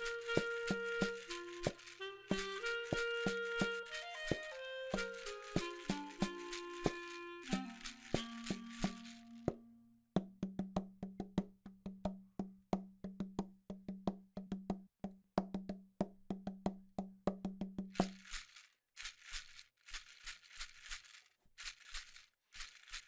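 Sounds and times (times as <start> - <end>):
sharp clicking percussion: 0.0 - 9.6, 17.5 - 23.0.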